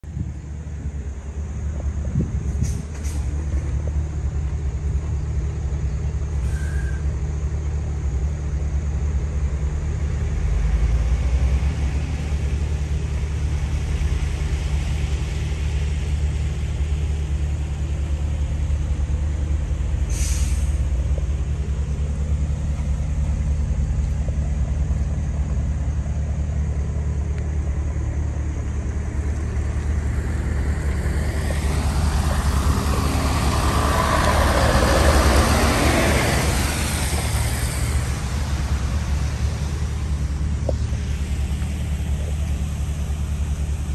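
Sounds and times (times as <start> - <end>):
truck diesel engine idling: 0.0 - 43.9
air release hiss: 20.0 - 21.0.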